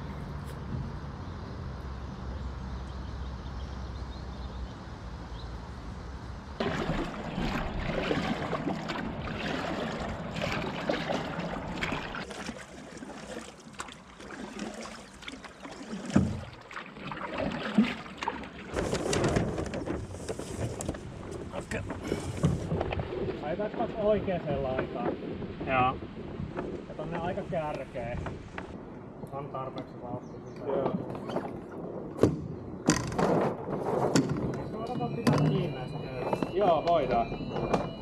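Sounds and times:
water sloshing against hull: 0:06.6 - 0:28.8, 0:32.9 - 0:38.0
rustling handling noise: 0:18.7 - 0:22.9.

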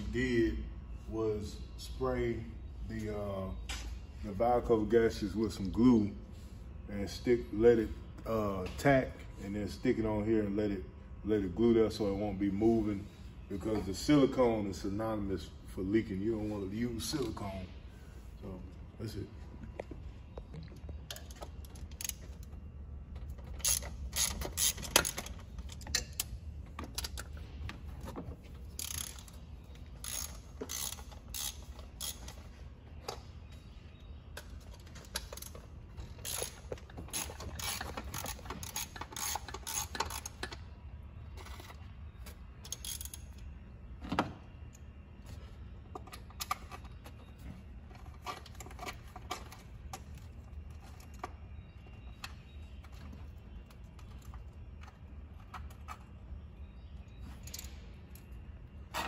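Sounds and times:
steady low hum: 0:00.0 - 0:59.0
hand ratchet clicking: 0:23.5 - 0:26.3, 0:28.8 - 0:29.4, 0:30.0 - 0:32.4, 0:36.2 - 0:40.6, 0:42.6 - 0:43.4
metal clinks of tool and bolts: 0:34.4 - 0:40.6, 0:41.4 - 0:43.5.

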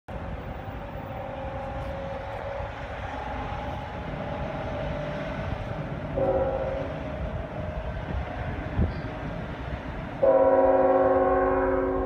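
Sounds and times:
constant low rumble: 0:00.1 - 0:10.2
distant train horn blasts: 0:06.1 - 0:07.2, 0:10.2 - 0:12.0.

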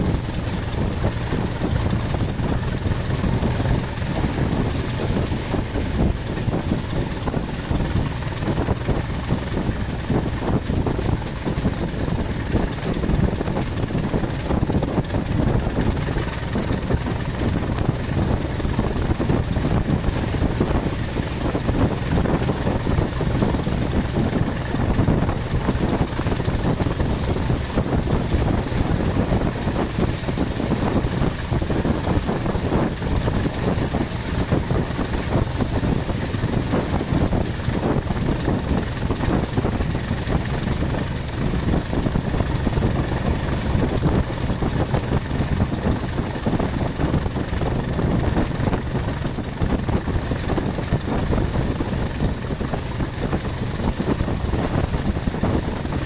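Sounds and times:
diesel locomotive engine: 0:00.0 - 0:56.0
wheels rumbling on rails: 0:00.0 - 0:56.0.

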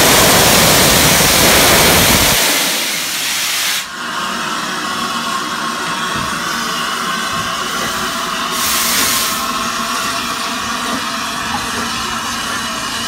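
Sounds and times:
steam hissing: 0:00.0 - 0:13.0
steam locomotive passing: 0:00.0 - 0:13.0.

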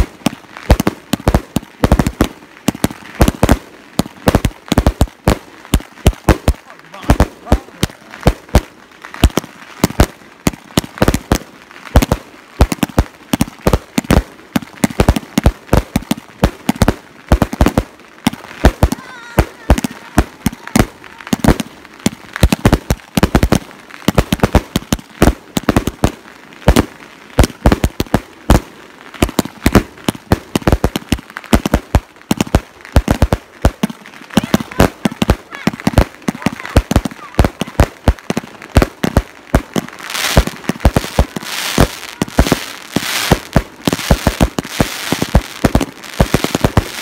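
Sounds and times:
firework shells bursting: 0:29.2 - 0:47.0.

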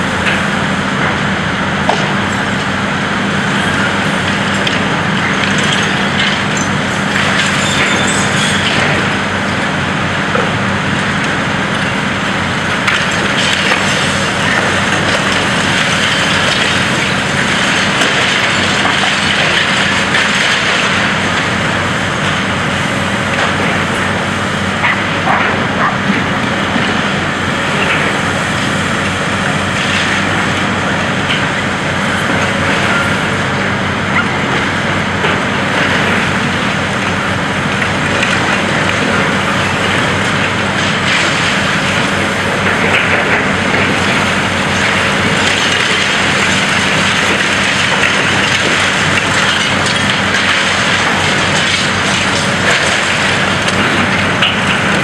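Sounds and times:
diesel engine and hydraulics: 0:00.0 - 0:55.0
concrete cracking: 0:42.7 - 0:55.0.

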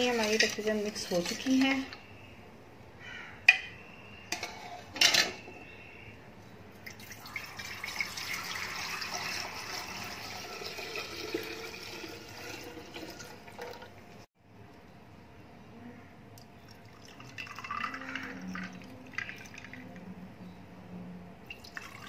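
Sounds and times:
liquid pouring into a jug: 0:06.8 - 0:14.1, 0:16.7 - 0:19.9, 0:21.5 - 0:22.0.

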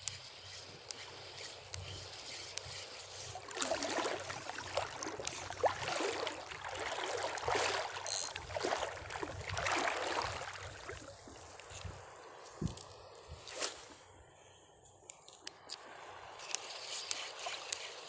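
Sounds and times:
seawater sloshing and splashing: 0:02.0 - 0:12.0.

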